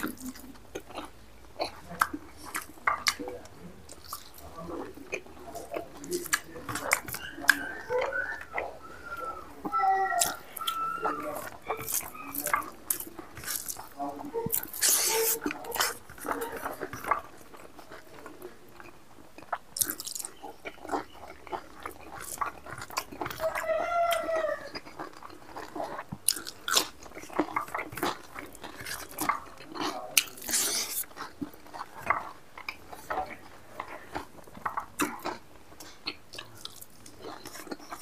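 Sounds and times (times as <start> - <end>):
man chewing food: 0.0 - 38.0
high wavering cry: 7.2 - 12.4.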